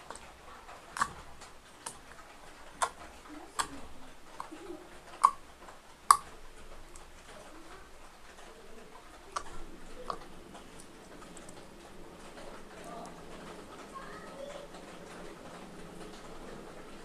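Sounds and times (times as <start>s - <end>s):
slime wet clicks and pops: 6.1s - 6.3s.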